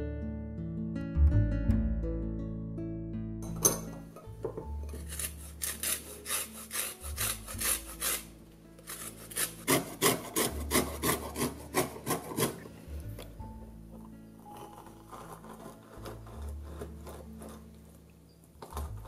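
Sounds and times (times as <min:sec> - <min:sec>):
lemon rasping on a grater: 0:05.0 - 0:12.7, 0:14.6 - 0:17.8.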